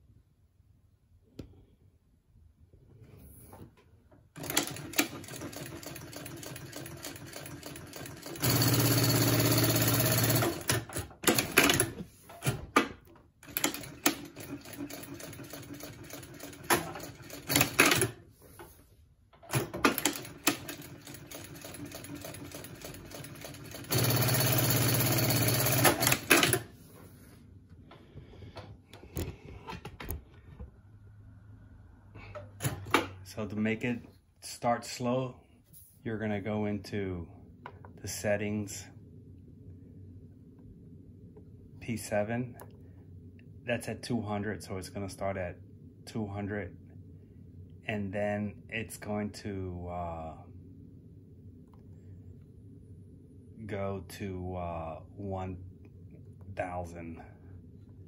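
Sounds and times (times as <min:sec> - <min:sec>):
sewing machine clicks: 0:04.4 - 0:12.0, 0:13.4 - 0:18.2, 0:19.5 - 0:26.6
sewing machine stitching: 0:04.4 - 0:18.2, 0:19.5 - 0:26.7.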